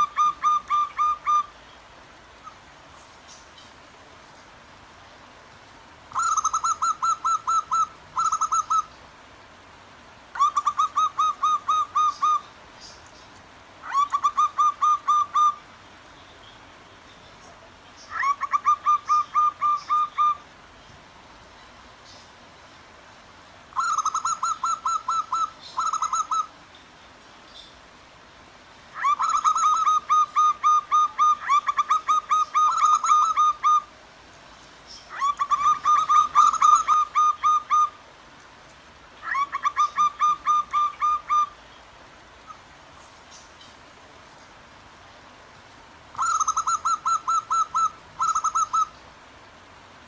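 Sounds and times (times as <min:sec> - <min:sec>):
faint stream water flowing: 0:00.0 - 0:50.0
doves cooing: 0:06.1 - 0:08.9, 0:18.1 - 0:20.4, 0:23.8 - 0:26.5, 0:29.0 - 0:33.9, 0:35.1 - 0:38.0, 0:46.2 - 0:48.9.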